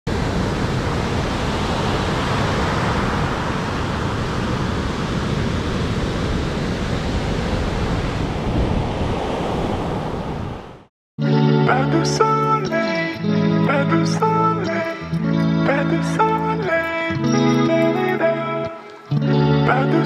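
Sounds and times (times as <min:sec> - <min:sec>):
sea surf rushing: 0:00.1 - 0:10.9
wind: 0:00.1 - 0:10.9.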